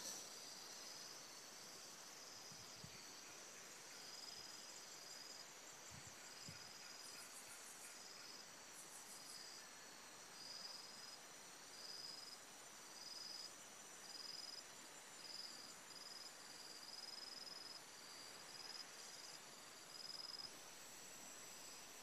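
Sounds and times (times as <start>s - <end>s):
high-pitched insect call: 0.0s - 9.7s
steady high insect buzz: 0.0s - 22.0s.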